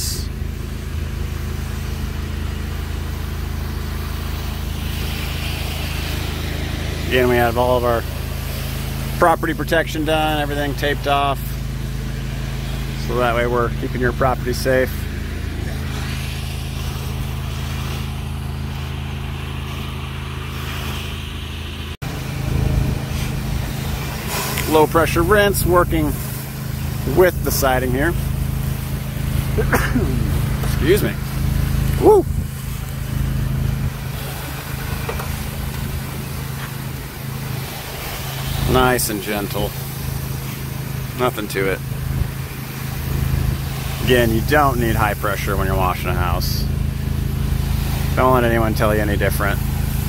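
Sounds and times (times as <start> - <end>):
pressure washer engine droning: 0.0 - 50.0
spray hissing on siding: 0.2 - 50.0.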